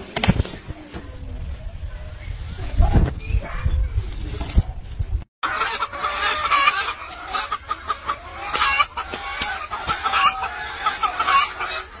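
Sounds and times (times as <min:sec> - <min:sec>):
hen clucking: 0:05.4 - 0:12.0.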